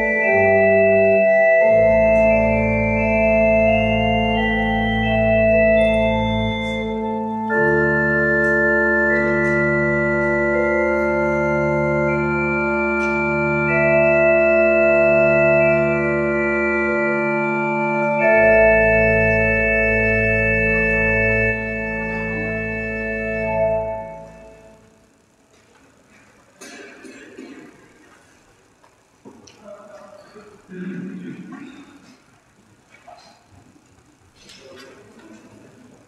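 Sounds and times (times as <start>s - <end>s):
pipe organ chords: 0.0s - 25.4s.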